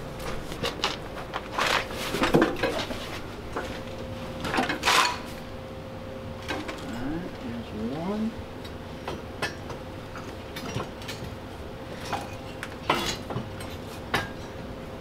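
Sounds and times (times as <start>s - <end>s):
metal car parts being shoved: 4.6s - 5.3s.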